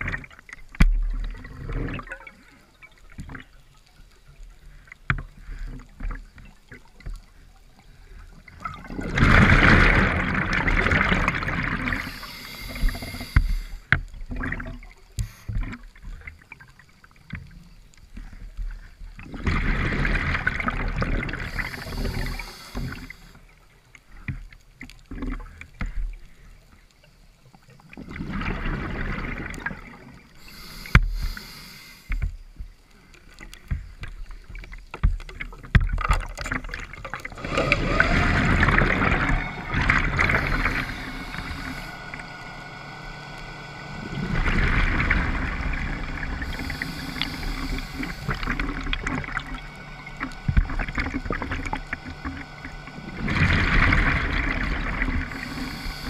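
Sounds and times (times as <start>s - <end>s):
exhaled bubbles underwater: 0.0s - 23.6s, 27.8s - 31.5s, 33.8s - 56.0s
regulator high hiss: 11.9s - 13.9s, 21.4s - 23.4s, 30.4s - 32.2s, 38.7s - 53.4s, 55.1s - 56.0s
faint gurgling: 36.0s - 56.0s.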